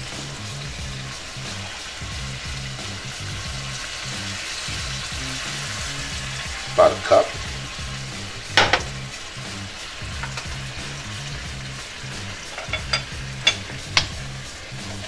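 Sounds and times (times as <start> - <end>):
shrimp sizzling in a pan: 0.0 - 15.0
utensil clicking against pan: 10.0 - 11.0, 11.8 - 15.0.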